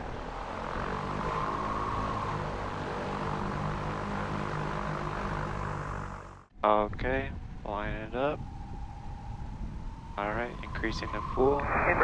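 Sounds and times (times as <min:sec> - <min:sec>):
high electric whine: 0:07.4 - 0:12.0.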